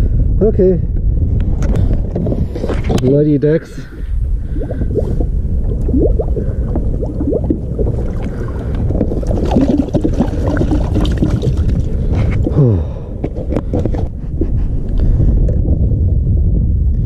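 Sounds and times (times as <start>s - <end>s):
wind buffeting microphone: 0.0s - 17.0s
water lapping around hull: 1.6s - 3.0s, 3.7s - 16.2s.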